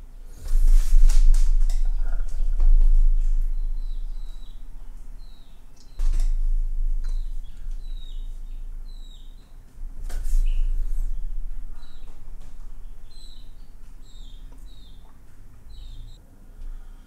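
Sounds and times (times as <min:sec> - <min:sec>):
low rumble: 0:00.0 - 0:16.2
bird chirping: 0:00.4 - 0:16.2
dull bump: 0:06.0 - 0:15.2.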